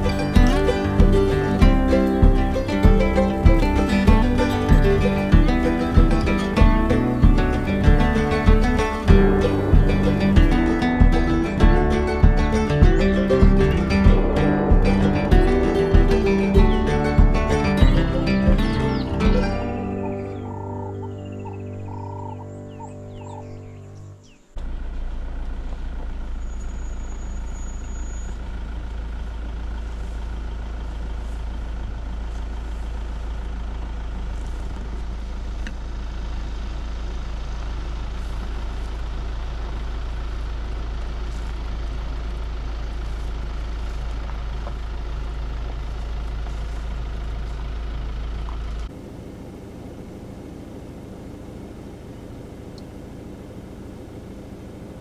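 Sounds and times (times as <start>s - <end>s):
vehicle engine and road rumble: 0.0s - 55.0s.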